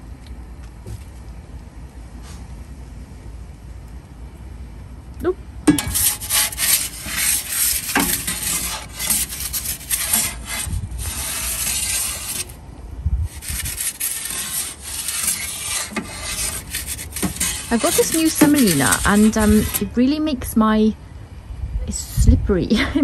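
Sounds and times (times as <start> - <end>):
metal peel scraping stone: 5.7 - 12.6, 13.3 - 20.0.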